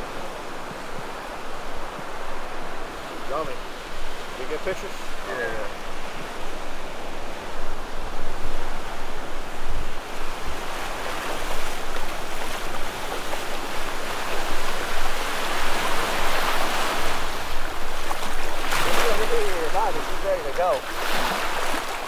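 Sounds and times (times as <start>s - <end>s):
surf washing up beach: 0.0s - 22.0s
splashing wading footsteps: 17.9s - 22.0s.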